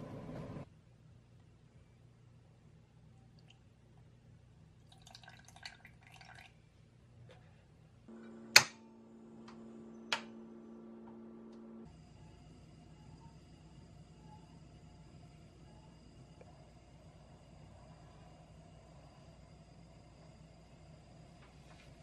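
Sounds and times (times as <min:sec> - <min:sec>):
milk pouring into saucepan: 0:04.8 - 0:06.6
gas stove igniter click: 0:08.5 - 0:08.8.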